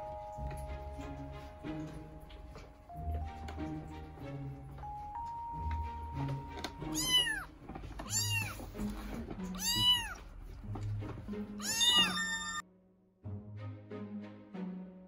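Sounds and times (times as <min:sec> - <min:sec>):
background music: 0:00.0 - 0:15.0
kitten meowing: 0:06.8 - 0:08.6, 0:09.6 - 0:10.2, 0:11.6 - 0:12.6.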